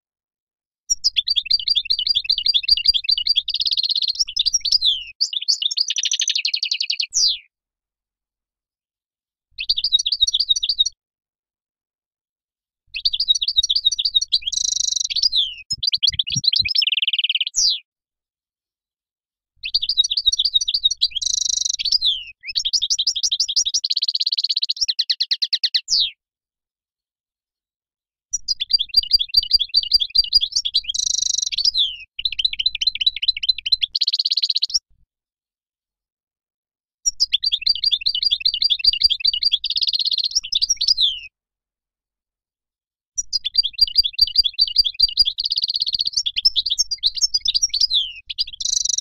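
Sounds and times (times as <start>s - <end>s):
goldfinch twittering song: 0.9s - 7.4s, 9.6s - 11.0s, 12.9s - 17.8s, 19.6s - 26.1s, 28.3s - 34.8s, 37.1s - 41.3s, 43.2s - 49.0s.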